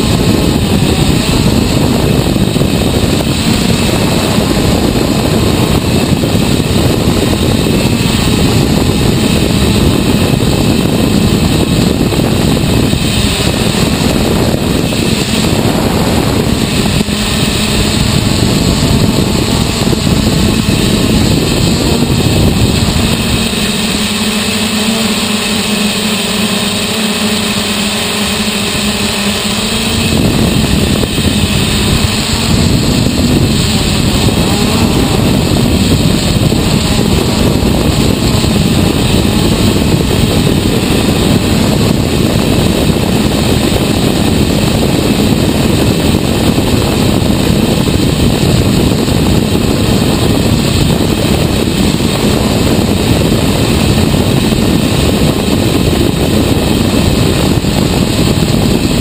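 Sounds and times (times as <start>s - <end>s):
drone propellers humming: 0.0s - 59.0s.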